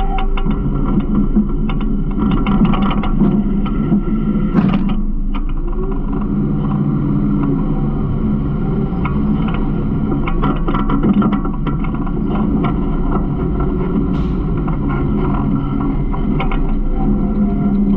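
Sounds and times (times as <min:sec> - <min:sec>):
garbage truck engine drone: 0:00.0 - 0:17.9
loud crash: 0:04.6 - 0:05.2.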